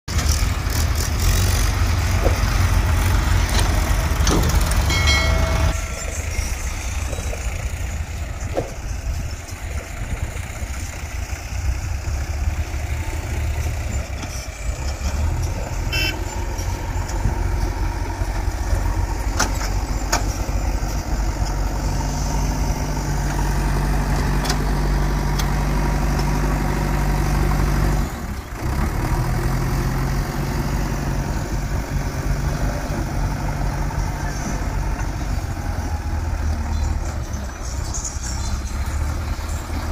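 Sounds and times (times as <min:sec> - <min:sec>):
diesel engines rumbling: 0:00.1 - 0:39.9
brief high-pitched tone: 0:04.9 - 0:07.5.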